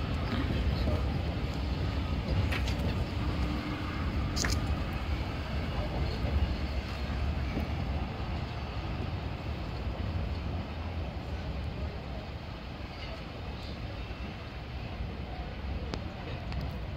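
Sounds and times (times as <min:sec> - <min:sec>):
train low rumble: 0:00.0 - 0:16.9.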